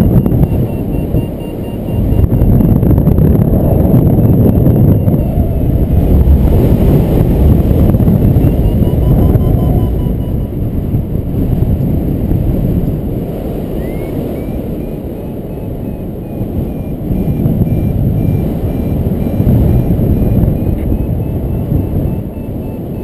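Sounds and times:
variometer short high beeps: 0.0s - 3.2s, 3.9s - 5.8s, 7.8s - 10.6s, 13.8s - 23.0s
heavy wind rushing over microphone: 0.0s - 23.0s.

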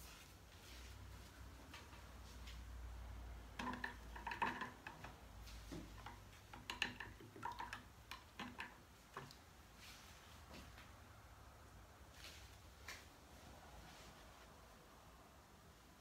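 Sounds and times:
light clicks and taps of tools: 3.5s - 9.5s.

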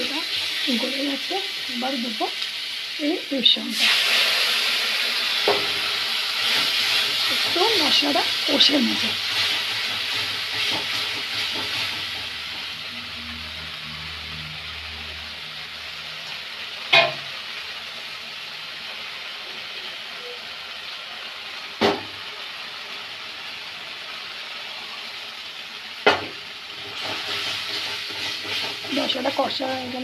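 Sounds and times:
paste sizzling in oil: 0.0s - 30.0s
steel spatula knocking on pan: 16.9s - 17.2s
stirring and scraping: 26.8s - 29.4s.

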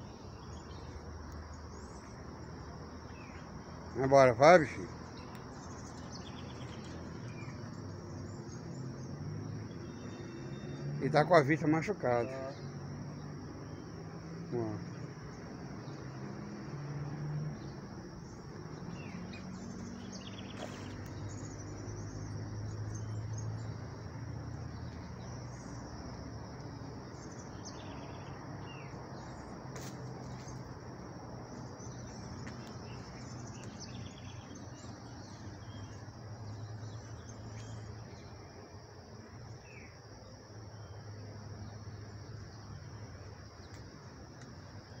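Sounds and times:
short bird chirps: 19.0s - 21.7s.

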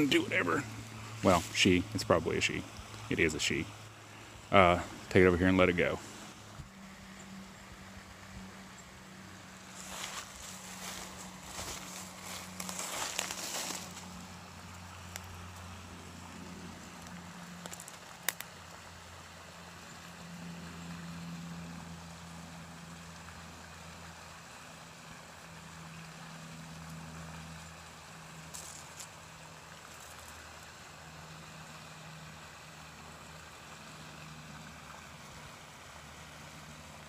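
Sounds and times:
low engine hum: 0.0s - 37.0s
dry leaves rustling and crackling: 9.6s - 18.6s, 28.3s - 30.7s.

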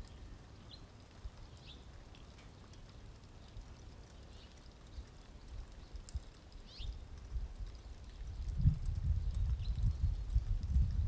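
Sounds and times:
high bird chirps: 6.6s - 7.0s.

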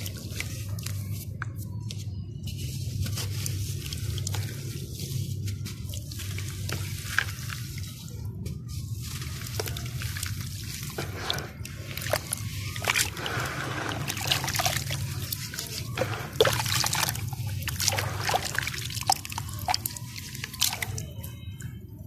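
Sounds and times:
dry dirt crumbling: 2.6s - 21.1s
crumbs dripping into water: 9.1s - 21.4s.

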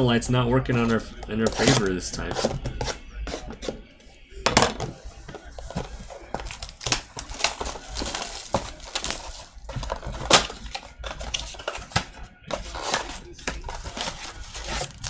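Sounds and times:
plastic wrap crinkling and tearing: 5.5s - 15.0s.

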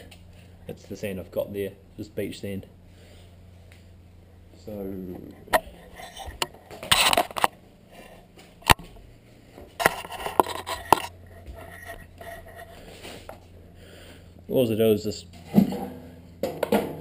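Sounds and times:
scraping and rustling: 5.4s - 8.8s, 9.6s - 13.6s
hard objects knocking and clattering: 15.4s - 17.0s.

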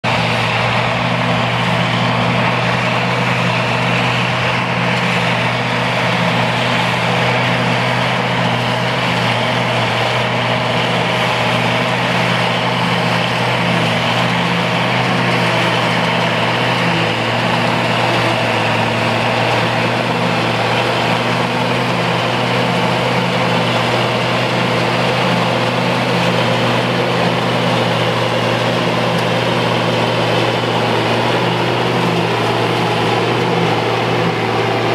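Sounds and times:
forage harvester rushing noise: 0.0s - 34.9s
tractor diesel engine running: 0.0s - 34.9s.

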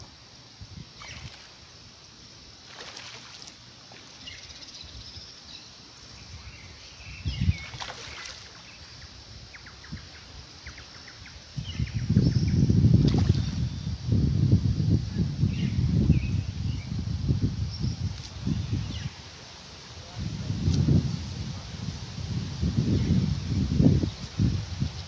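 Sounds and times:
fish splashing in water: 2.6s - 4.3s, 7.6s - 8.7s
birds chirping: 3.4s - 14.0s.

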